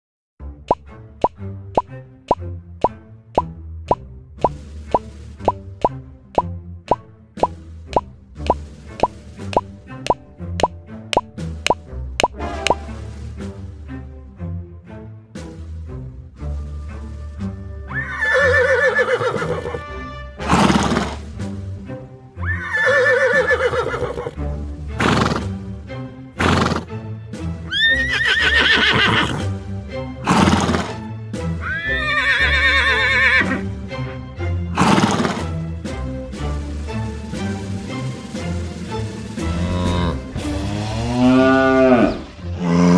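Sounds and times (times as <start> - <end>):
background music: 0.4 - 42.9
horse whinnying: 17.9 - 19.8, 22.4 - 24.4, 27.7 - 29.5, 30.2 - 31.0, 31.6 - 33.6, 34.8 - 35.5, 39.5 - 42.9.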